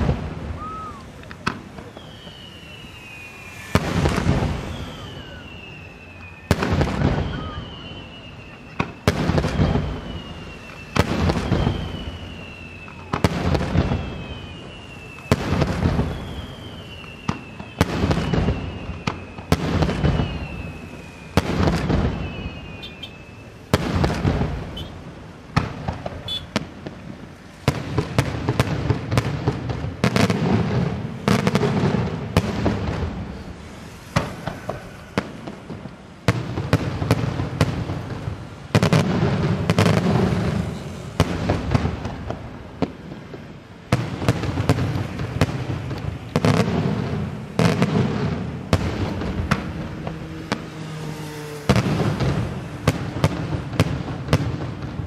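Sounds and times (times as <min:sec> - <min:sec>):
firework shells bursting: 0:00.0 - 0:14.4
fireworks crackling: 0:00.0 - 0:55.0
short falling whistle: 0:00.6 - 0:01.2, 0:01.8 - 0:13.2, 0:13.8 - 0:23.6.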